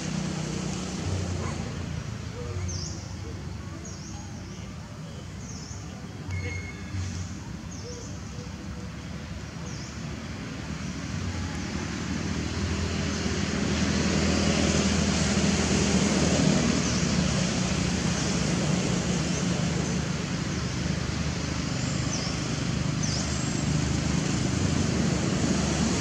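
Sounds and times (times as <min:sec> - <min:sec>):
passing motor engine rumble: 0:06.9 - 0:26.0.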